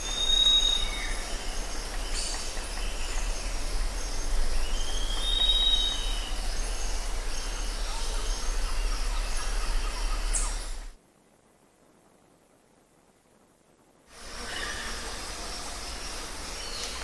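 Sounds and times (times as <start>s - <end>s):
birds whistling and calling: 0.0s - 10.9s
steady low rumble: 0.8s - 11.0s.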